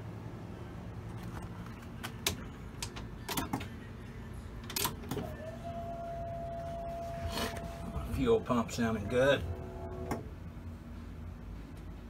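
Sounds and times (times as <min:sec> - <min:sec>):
electric fuel pump whining: 0:04.8 - 0:10.4.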